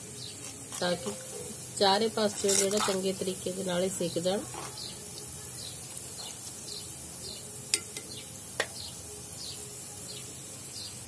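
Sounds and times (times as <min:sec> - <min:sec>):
food deep-frying in hot oil: 0:00.0 - 0:11.0
birds chirping: 0:03.8 - 0:11.0.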